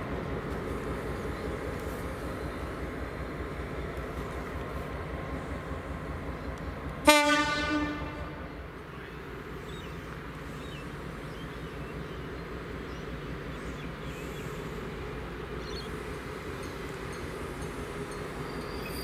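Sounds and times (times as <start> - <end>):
diesel locomotive engine rumble: 0.0 - 19.0
locomotive horn blast: 7.0 - 8.6.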